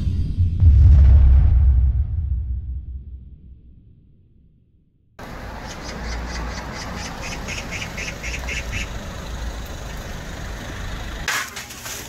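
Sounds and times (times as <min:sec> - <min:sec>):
street noise low rumble: 0:05.2 - 0:12.0.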